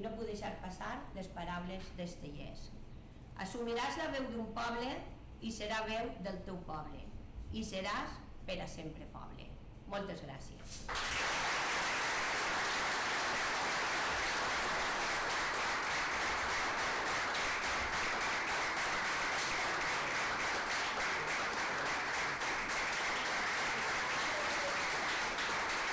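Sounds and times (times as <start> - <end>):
crowd applauding: 10.9 - 25.9.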